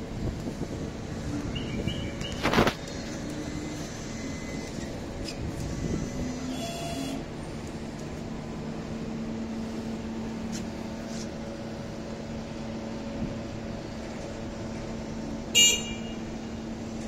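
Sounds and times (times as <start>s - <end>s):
factory machine hum: 0.0s - 17.0s.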